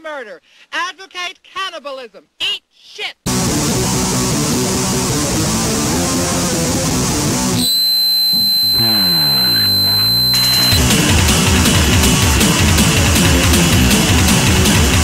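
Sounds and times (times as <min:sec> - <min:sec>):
rock music with electric guitar: 0:03.3 - 0:07.6, 0:08.5 - 0:15.0
steady high whine: 0:07.6 - 0:11.0.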